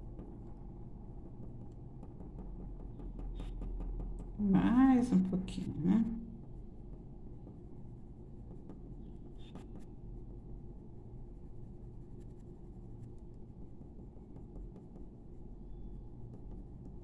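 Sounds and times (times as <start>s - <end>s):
steady low hum: 0.0s - 17.0s
pencil scratching on paper: 6.9s - 10.0s, 11.4s - 15.4s.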